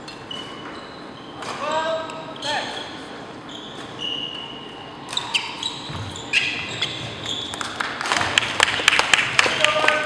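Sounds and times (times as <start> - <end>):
shoes squeaking on wooden floor: 2.6 - 7.8.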